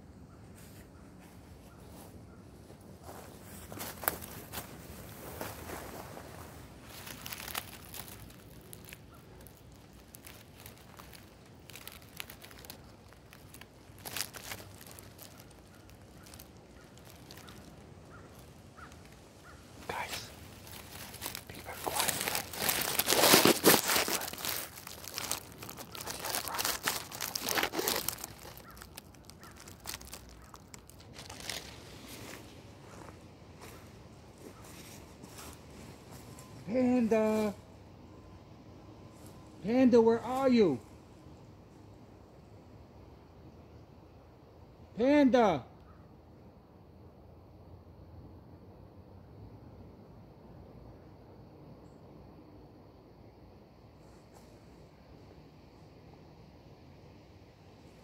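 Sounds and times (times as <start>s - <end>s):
dry leaves crackling underfoot: 0.4s - 37.8s.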